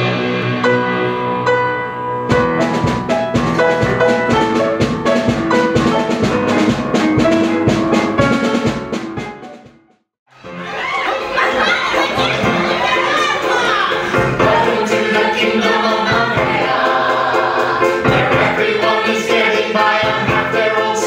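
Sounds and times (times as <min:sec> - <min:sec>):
upbeat instrumental music: 0:00.0 - 0:21.0
drum kit beat: 0:02.3 - 0:10.0, 0:11.8 - 0:21.0.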